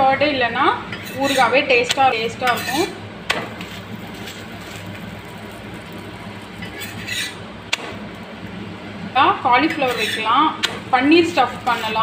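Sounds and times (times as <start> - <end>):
steel spatula scraping: 0.9 - 3.0, 3.6 - 5.4, 6.4 - 7.4, 9.7 - 10.4, 11.2 - 12.0
flatbread frying hiss: 1.1 - 8.6
spatula clinking on griddle: 2.4 - 2.9, 6.6 - 7.4.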